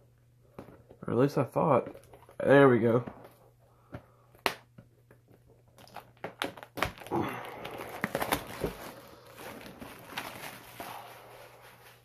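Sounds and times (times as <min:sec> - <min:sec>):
plastic wrap crinkling and crackling: 0:05.2 - 0:12.0.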